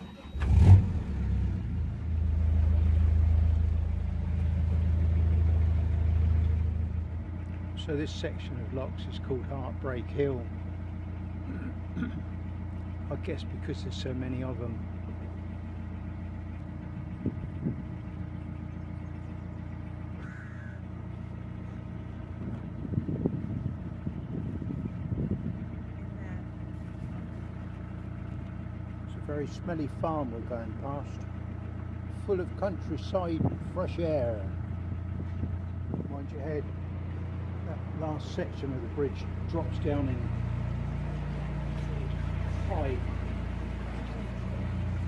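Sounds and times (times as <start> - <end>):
diesel engine running: 0.0 - 45.0
bird call: 18.6 - 20.9.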